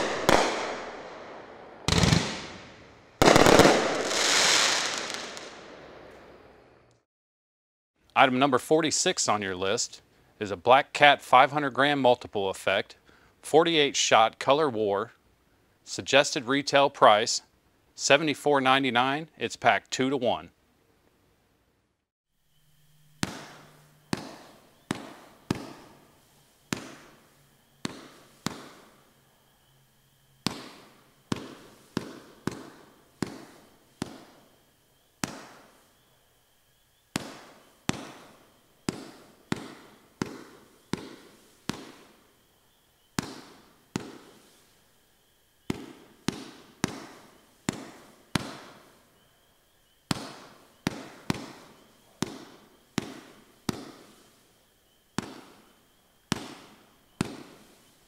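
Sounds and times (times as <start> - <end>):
firework shots banging: 0.0 - 6.6, 23.2 - 29.2, 30.4 - 36.0, 37.1 - 42.5, 43.1 - 44.8, 45.6 - 49.1, 50.1 - 54.4, 55.1 - 58.0.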